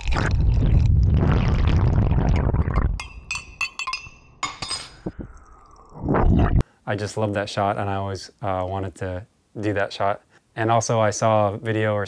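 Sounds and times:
clinks against cup: 0:03.0 - 0:05.0.

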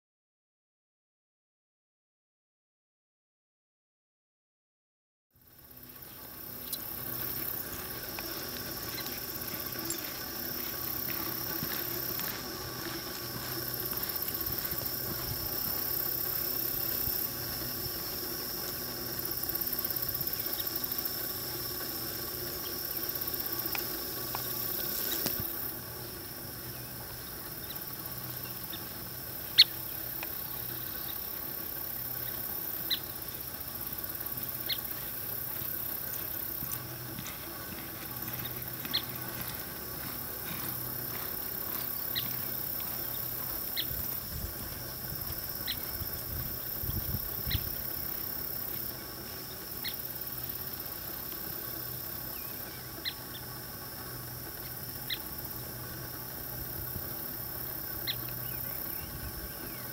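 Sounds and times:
high-pitched outdoor hiss: 0:05.4 - 0:59.9
horse hoofbeats on dirt: 0:06.3 - 0:25.8, 0:26.4 - 0:49.0.

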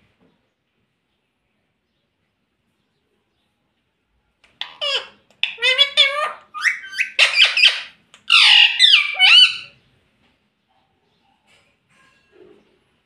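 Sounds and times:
parakeet squawking and chattering: 0:04.5 - 0:09.8.

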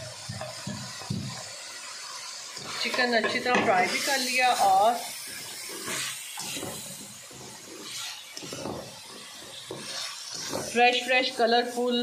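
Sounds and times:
food sizzling in a wok: 0:00.0 - 0:12.0
spatula scraping a pan: 0:02.6 - 0:12.0.

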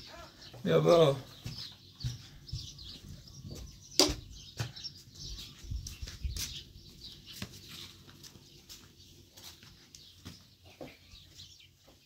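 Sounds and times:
small birds chirping: 0:00.0 - 0:12.0
soft low thumps: 0:01.3 - 0:06.6.

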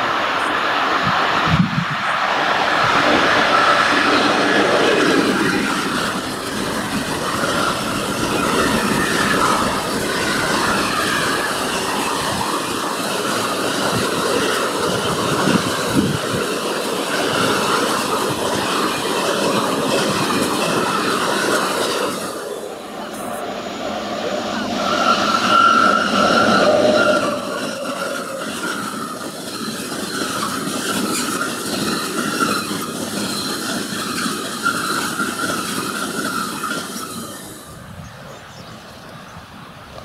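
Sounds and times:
train wheels clattering on rails: 0:00.0 - 0:38.5.

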